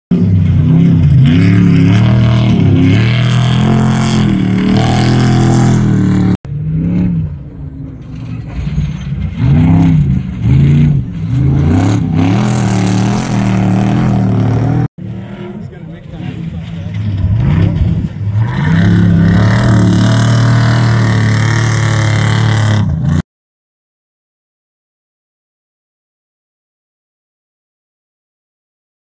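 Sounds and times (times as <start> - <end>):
race trucks revving past: 0.1 - 23.2.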